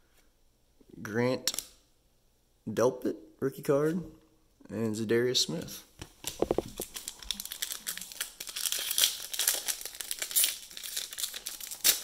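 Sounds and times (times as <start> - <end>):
foil pack crinkling and tearing: 6.3 - 12.0.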